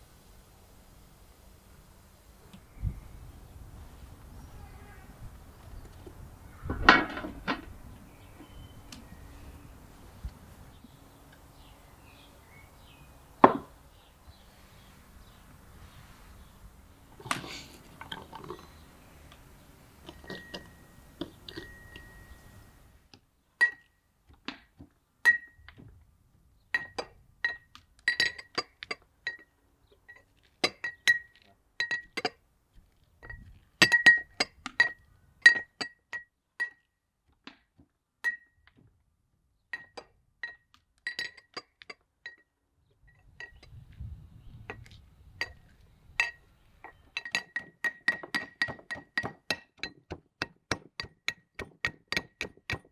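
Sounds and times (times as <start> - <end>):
metal pestle clinking in mortar: 21.5 - 22.4, 26.8 - 29.5, 30.1 - 32.4, 33.2 - 36.8, 39.8 - 42.5, 44.7 - 52.9.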